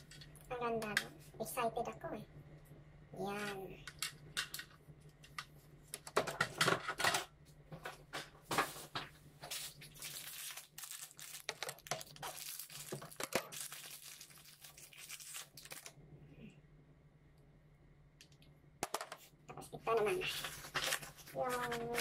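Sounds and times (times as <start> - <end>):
plastic packaging crinkling and tearing: 9.4 - 16.0, 20.0 - 22.0.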